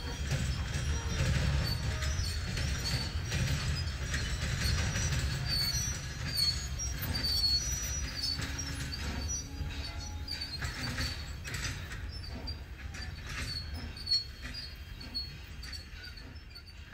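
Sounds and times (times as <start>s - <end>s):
train rumbling by: 0.0s - 16.9s.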